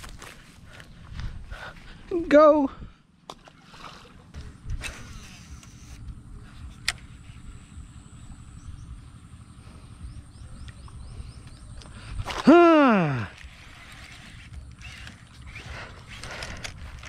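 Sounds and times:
footsteps through grass: 0.0s - 2.1s
wind rumbling on microphone: 4.2s - 12.5s.

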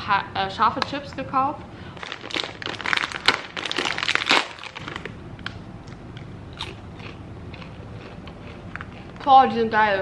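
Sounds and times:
foil bag rustling: 2.0s - 5.1s
potato chips crunching: 2.0s - 5.2s, 5.8s - 9.3s.

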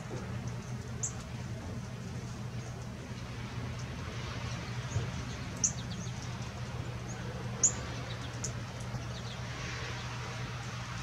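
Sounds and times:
birds chirping: 0.0s - 1.4s, 3.7s - 11.0s.

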